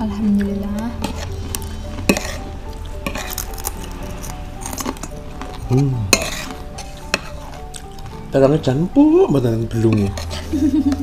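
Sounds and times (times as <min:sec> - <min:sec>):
soft background music: 0:00.0 - 0:11.0
spoons clinking on ceramic plates: 0:02.0 - 0:02.4, 0:05.7 - 0:07.6, 0:09.7 - 0:11.0.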